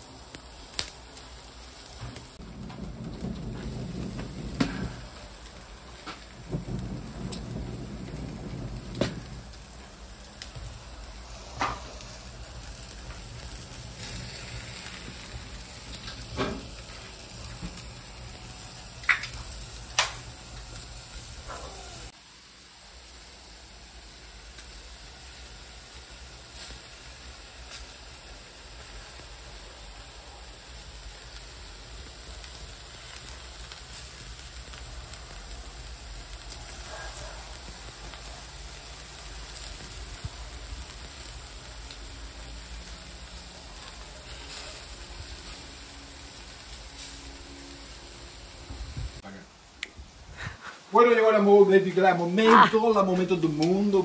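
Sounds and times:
meat sizzling on a grill: 0.0 - 49.4, 50.4 - 54.0
sharp pops and crackles: 0.2 - 22.1, 32.3 - 45.6, 52.4 - 54.0.

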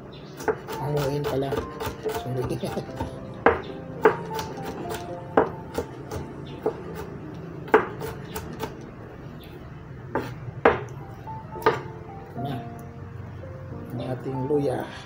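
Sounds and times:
knife chopping on wooden board: 0.4 - 8.9, 10.1 - 10.9, 11.6 - 11.9.

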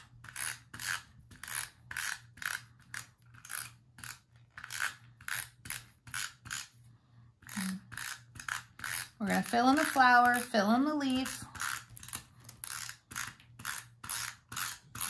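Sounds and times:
tape runner pulled across wood: 7.5 - 9.2.

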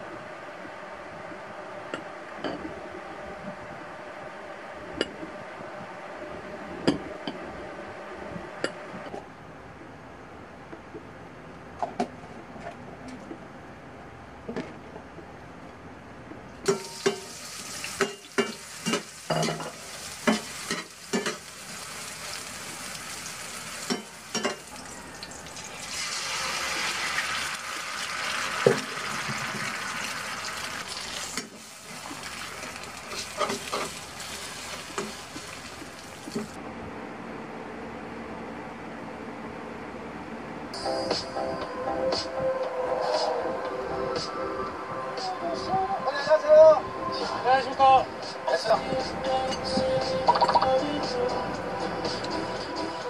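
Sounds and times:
food sizzling in a frying pan: 16.7 - 36.6.

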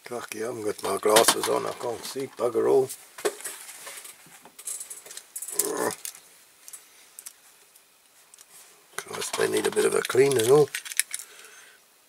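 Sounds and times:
objects clicking and rattling: 0.7 - 2.2, 3.2 - 7.4, 8.3 - 11.3.

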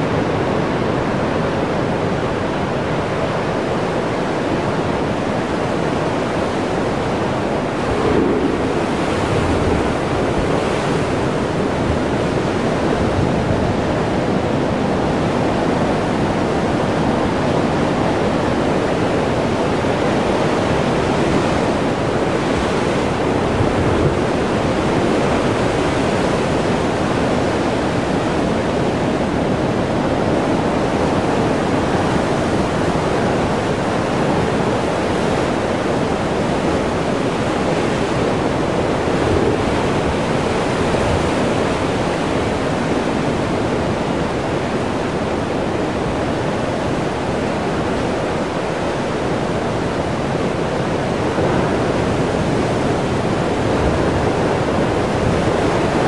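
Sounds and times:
ocean surf breaking over rocks: 0.0 - 56.0.

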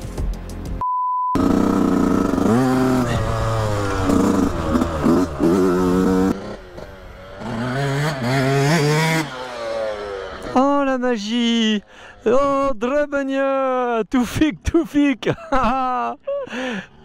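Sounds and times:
motocross bike engine revving: 1.4 - 10.8.

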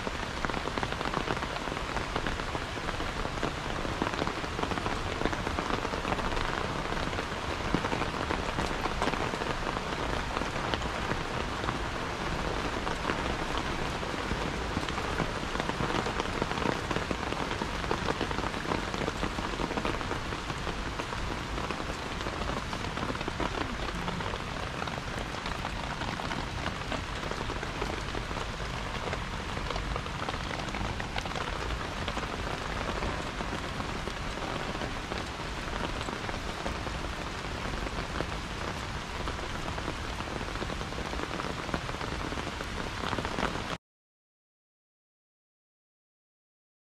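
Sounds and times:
rain pattering on plants: 0.0 - 43.8.

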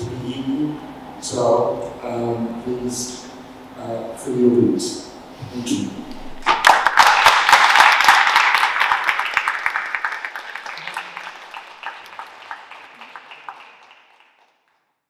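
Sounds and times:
audience applauding: 6.4 - 14.9.

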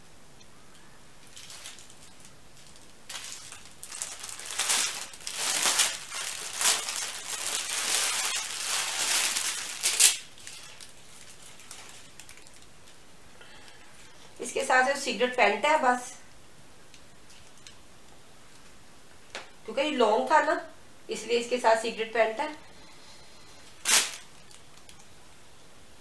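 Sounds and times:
sharp crackle: 0.4 - 13.8, 23.4 - 25.1
paper and plastic crinkling: 1.2 - 14.3, 23.4 - 25.0.

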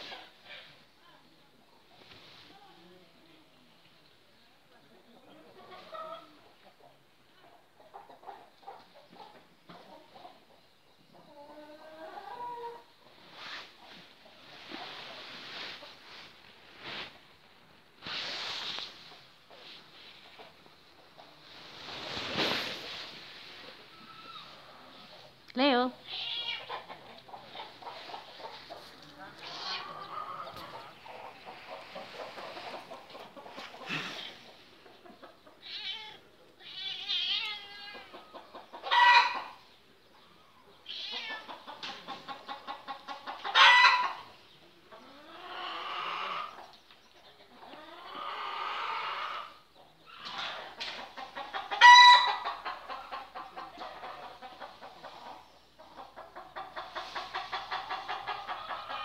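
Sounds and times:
chickens clucking: 0.0 - 0.8, 3.6 - 36.6, 37.6 - 59.0
loud sharp chicken calls: 37.0 - 39.8, 41.0 - 44.4, 45.0 - 46.8, 47.5 - 59.0.

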